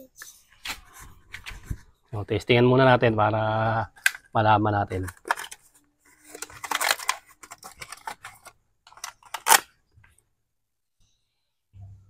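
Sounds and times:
clicks and rustling of handling: 4.9s - 10.2s.

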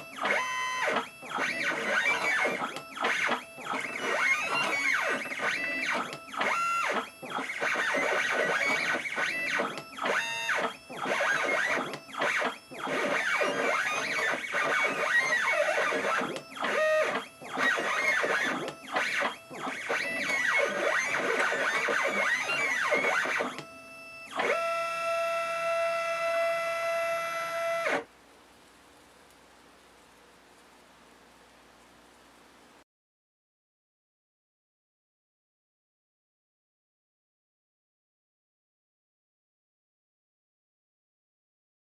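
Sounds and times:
stepper motors whining: 0.0s - 28.1s.

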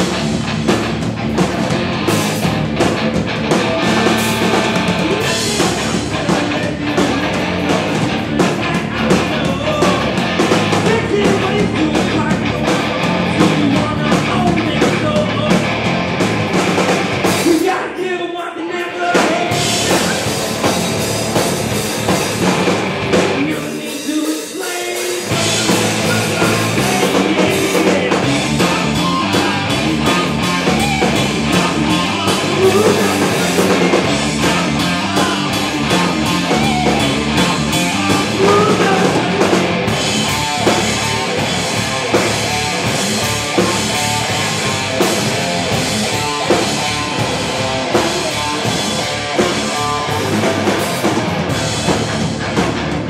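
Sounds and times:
rock band playing live: 0.0s - 53.0s
sung vocals: 3.6s - 16.1s, 17.2s - 20.8s, 23.1s - 41.2s.

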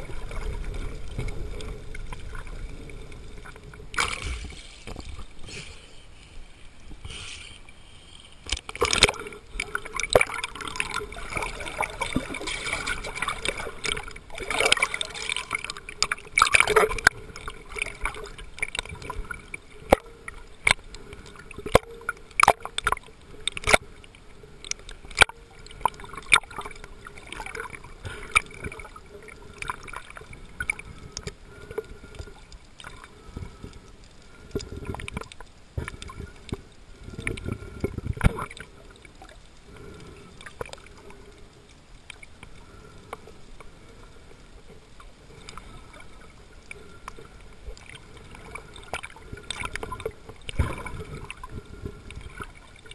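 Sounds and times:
water gurgling and sloshing: 0.0s - 52.9s
sharp underwater clicks and knocks: 3.4s - 5.8s, 8.1s - 23.9s, 24.6s - 28.9s, 29.6s - 38.7s, 46.7s - 52.9s.

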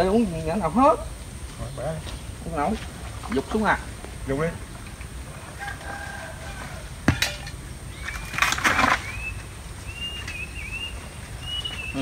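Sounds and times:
coconut rustling crash: 7.0s - 9.3s.

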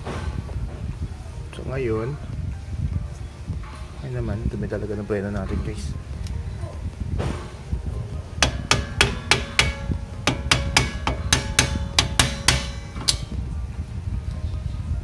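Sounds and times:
metal tool tapping on brake: 8.4s - 13.4s.

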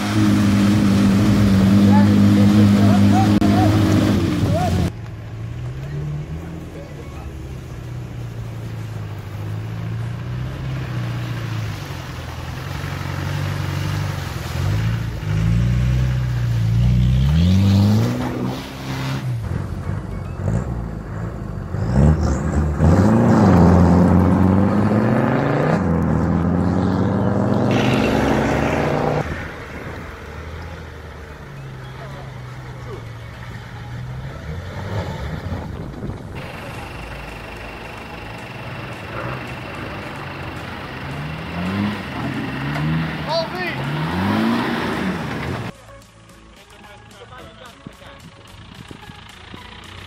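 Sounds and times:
engine revving: 0.0s - 6.9s, 8.4s - 45.7s
wheels spinning in loose dirt: 29.2s - 50.0s.

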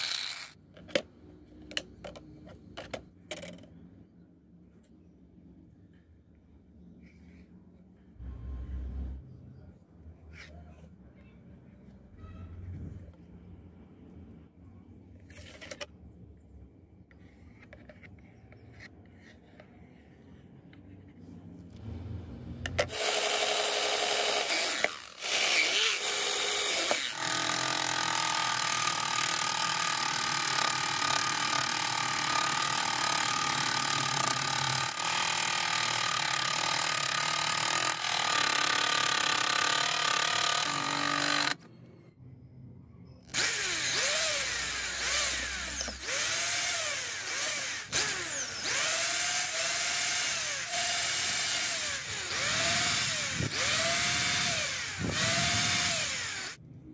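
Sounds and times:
cordless drill spinning up: 0.0s - 0.6s, 22.8s - 41.6s, 43.3s - 56.6s
scroll saw buzzing: 0.0s - 0.6s, 22.8s - 41.6s, 43.3s - 56.6s.

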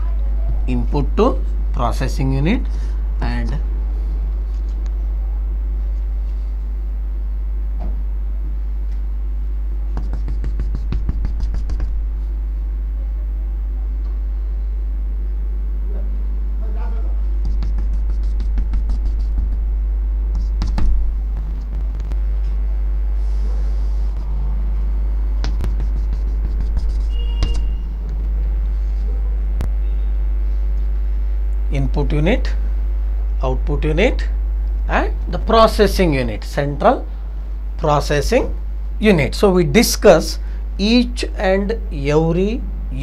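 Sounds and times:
low electrical hum: 0.0s - 43.0s
chalk scratching on chalkboard: 10.0s - 12.0s, 17.2s - 19.7s, 20.3s - 20.9s, 23.2s - 24.4s, 25.4s - 27.8s.

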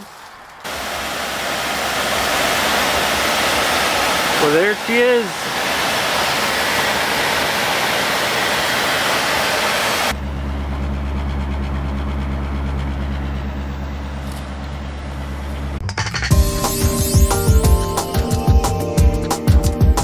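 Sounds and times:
exhaust low hum: 9.8s - 15.8s
car engine idling: 10.1s - 15.8s.

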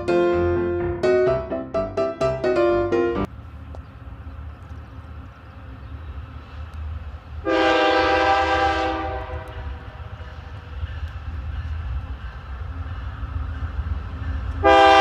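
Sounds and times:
train rumbling: 0.0s - 15.0s
locomotive air horn blast: 7.4s - 10.2s, 14.6s - 15.0s.

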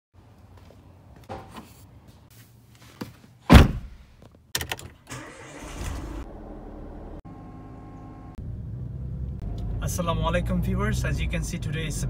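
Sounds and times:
car door slamming: 3.5s - 4.0s
car engine starting: 5.1s - 11.6s.

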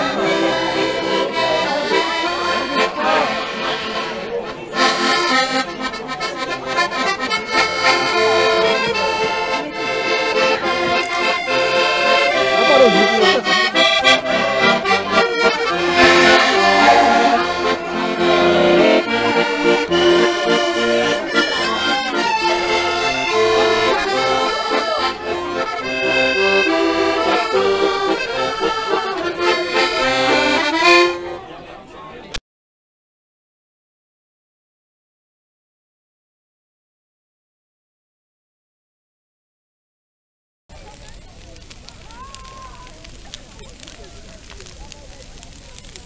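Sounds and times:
button accordion playing a tune: 0.0s - 31.4s.

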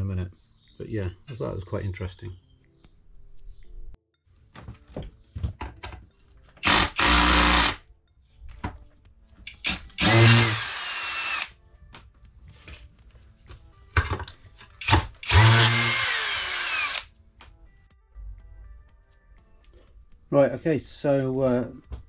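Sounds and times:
cordless drill whirring: 6.6s - 7.8s, 9.7s - 11.5s, 15.2s - 17.1s.

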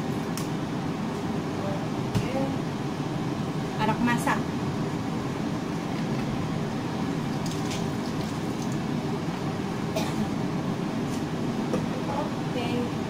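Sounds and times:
liquid boiling in a wok: 4.8s - 9.6s.

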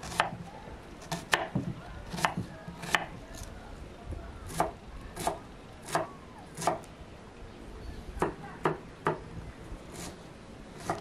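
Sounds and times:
knife chopping on wooden board: 0.0s - 0.4s, 1.0s - 3.1s, 10.8s - 11.0s.

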